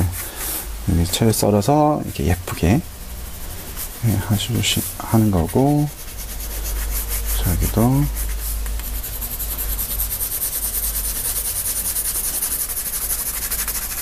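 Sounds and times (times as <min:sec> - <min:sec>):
pencil scratching on paper: 0:03.3 - 0:14.0.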